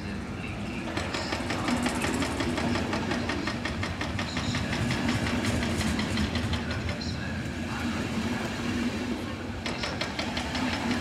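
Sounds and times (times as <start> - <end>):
train wheels clicking over rails: 0.7 - 11.0.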